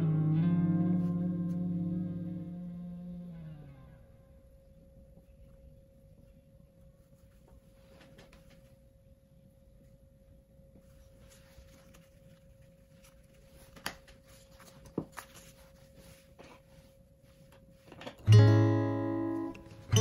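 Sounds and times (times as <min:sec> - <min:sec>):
acoustic guitar chord strummed: 0:00.0 - 0:04.0, 0:18.2 - 0:20.0
paper rustling: 0:10.8 - 0:18.2.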